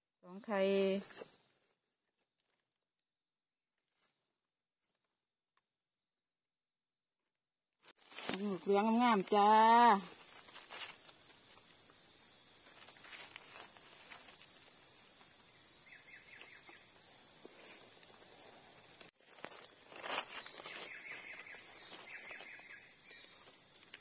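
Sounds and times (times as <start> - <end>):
insects buzzing: 8.0 - 24.0.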